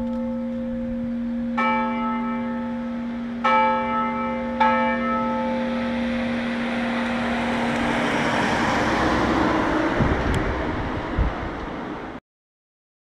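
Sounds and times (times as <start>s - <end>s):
large church bell ringing: 0.0s - 10.0s
car passing: 4.4s - 12.2s.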